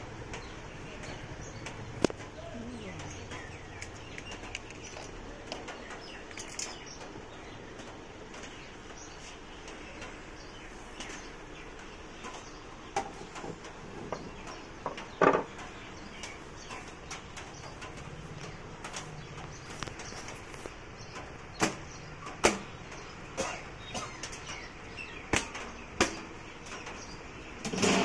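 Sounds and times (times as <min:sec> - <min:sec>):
low background noise: 0:00.0 - 0:28.0
sheet metal cover clicks and rattles: 0:25.4 - 0:28.0.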